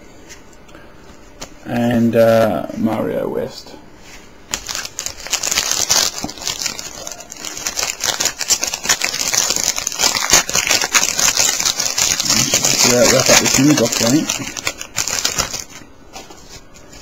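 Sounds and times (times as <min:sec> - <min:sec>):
foil wrapper crinkling and tearing: 0:04.5 - 0:15.8.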